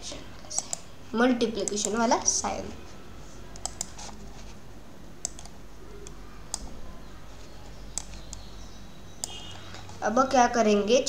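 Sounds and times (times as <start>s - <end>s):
computer mouse clicks: 0.4s - 0.9s, 1.6s - 2.4s, 3.5s - 4.6s, 5.2s - 6.8s, 7.6s - 8.5s, 9.2s - 10.0s.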